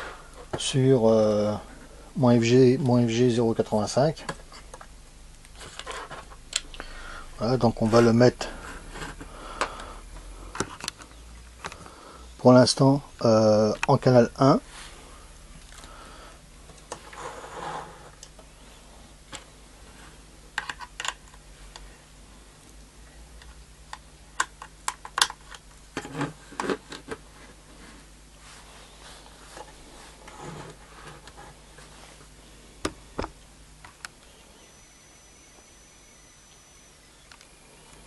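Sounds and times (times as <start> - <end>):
faint low hum: 0.0 - 38.0.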